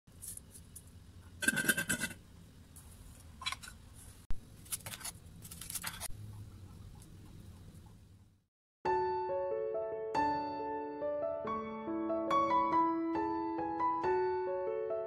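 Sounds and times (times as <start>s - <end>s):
fruit peel scraping: 4.6s - 6.1s.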